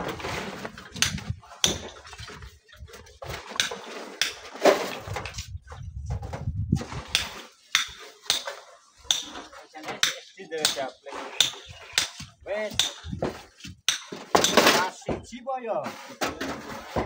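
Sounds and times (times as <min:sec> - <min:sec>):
stones clanking on wheelbarrows: 0:00.0 - 0:17.0.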